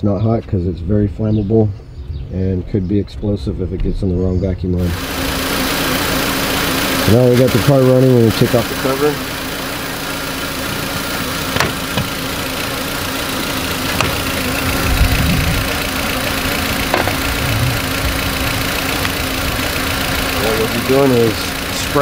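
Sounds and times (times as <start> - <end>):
car engine idling: 4.8 - 22.0.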